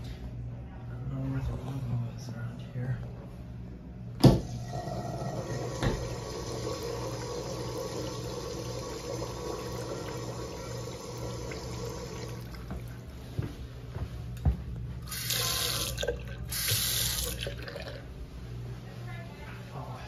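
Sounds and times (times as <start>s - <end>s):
urinal flush clunk: 4.2s - 10.4s
water rushing through urinal bowl: 4.4s - 13.0s, 15.1s - 18.1s.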